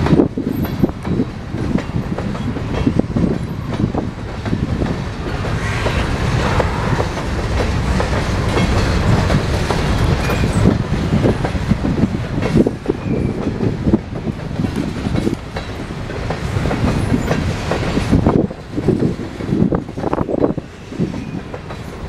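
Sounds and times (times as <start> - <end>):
train wheels clacking: 0.0 - 22.0
low rumble: 5.1 - 8.4.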